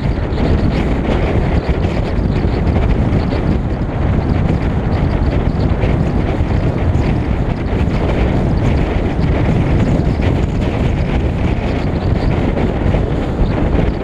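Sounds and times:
car road noise: 0.0 - 14.0
wind buffeting microphone: 0.0 - 14.0.

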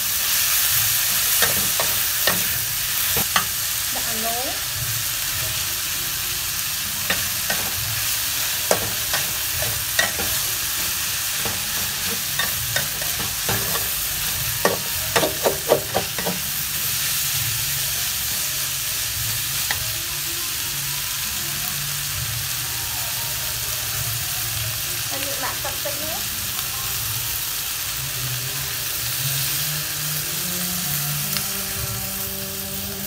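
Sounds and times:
food sizzling in a wok: 0.0 - 33.0.

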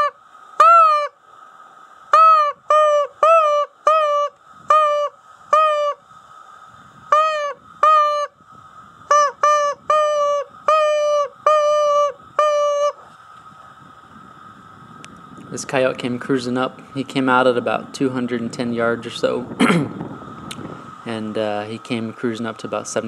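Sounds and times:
rabbit distress call squeals: 0.0 - 1.1, 2.1 - 6.0, 7.2 - 8.3, 9.1 - 13.0.

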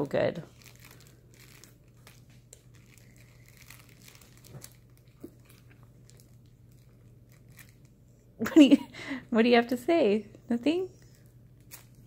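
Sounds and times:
steady low hum: 0.0 - 12.0
cellophane wrapper crinkling: 0.1 - 8.3, 11.0 - 12.0.

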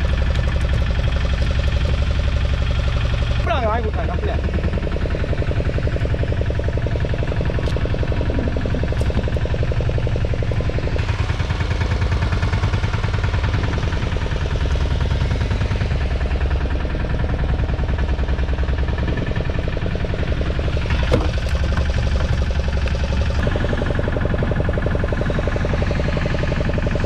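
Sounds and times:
boat engine idling: 0.0 - 27.0.

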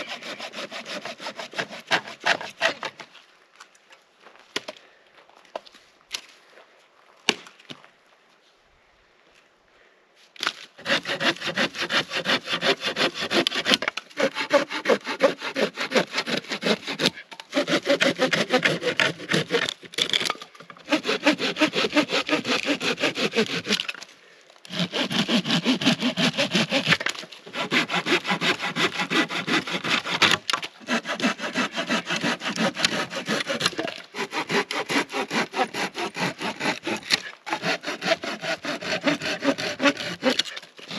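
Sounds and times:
hand saw cutting branch: 0.0 - 3.1, 10.4 - 20.2, 20.8 - 40.9.

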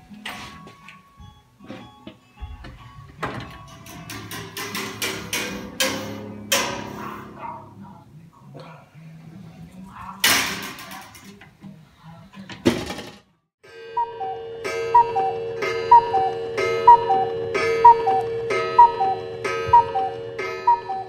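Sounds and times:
cuckoo clock call: 13.8 - 21.0.

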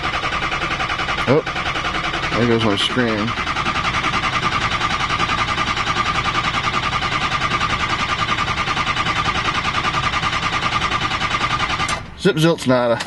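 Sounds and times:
starter motor whine: 0.0 - 12.2
diesel engine cranking: 0.0 - 13.0.

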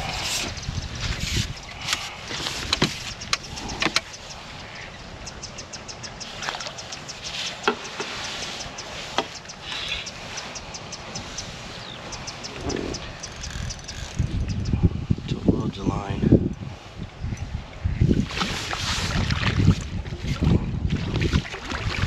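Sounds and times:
sharp clicks: 2.7 - 4.4
fishing reel ticking: 13.0 - 14.4.

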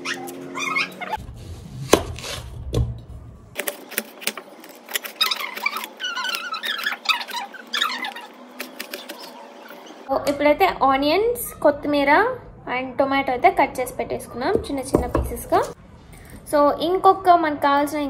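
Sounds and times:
onion layers squeaking and crackling: 0.0 - 1.4, 4.7 - 10.1.

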